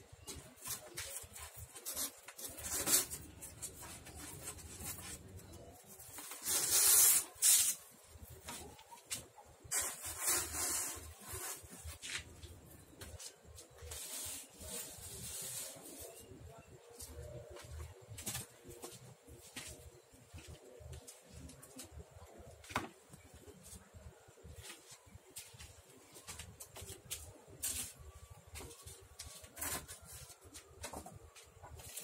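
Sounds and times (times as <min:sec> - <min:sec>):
foam sheets rubbing and scraping: 0:00.2 - 0:12.5, 0:13.1 - 0:18.6, 0:26.1 - 0:32.0.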